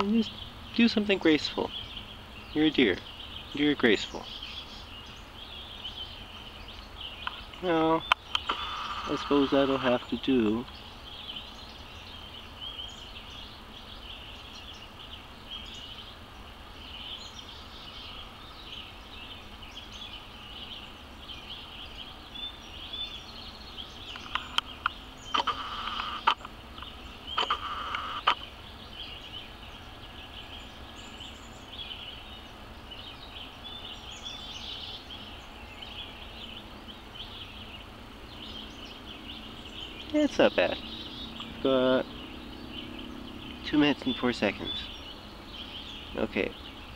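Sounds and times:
insects and birds chorus: 0.0s - 46.9s
sharp clicks: 7.2s - 10.8s, 24.1s - 28.4s
rustling bursts: 8.4s - 10.0s, 25.3s - 26.5s, 27.4s - 28.4s.

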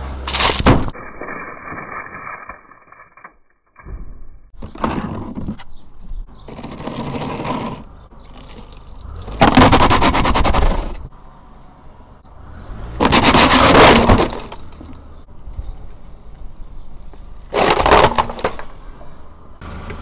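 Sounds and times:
case scraping on concrete: 4.6s - 11.0s, 13.0s - 14.8s, 17.5s - 18.7s.

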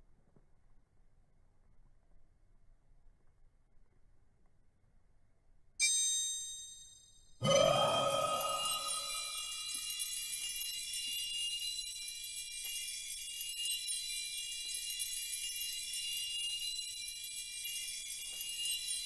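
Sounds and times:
shimmering jingle of bells and chimes: 6.3s - 19.0s.

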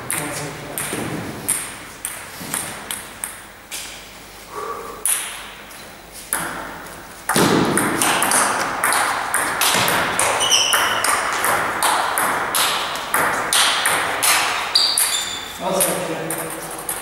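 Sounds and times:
table tennis ball hitting bats: 0.0s - 3.9s, 5.0s - 5.5s, 6.3s - 17.0s
ball bouncing on table: 0.1s - 3.4s, 7.3s - 17.0s
shoe squeak: 10.2s - 11.1s, 14.6s - 15.6s.

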